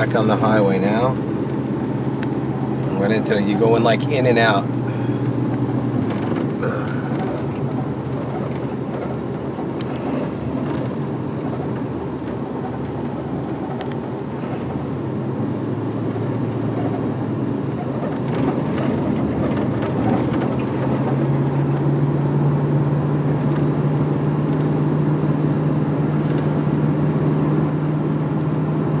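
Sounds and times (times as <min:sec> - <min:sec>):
car cabin road noise: 0:00.0 - 0:29.0
steady low drone: 0:04.6 - 0:17.7.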